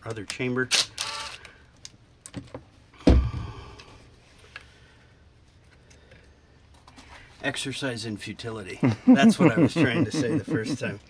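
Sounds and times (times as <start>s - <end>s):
heavy thump: 3.0s - 3.8s.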